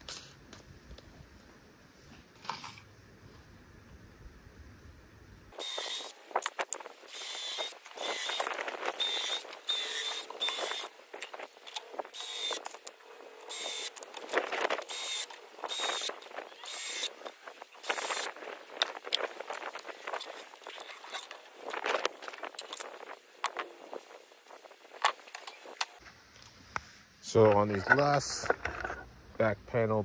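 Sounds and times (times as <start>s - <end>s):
cordless drill whining: 5.6s - 6.2s, 7.1s - 10.9s, 11.7s - 12.8s, 13.4s - 14.0s, 14.8s - 18.3s.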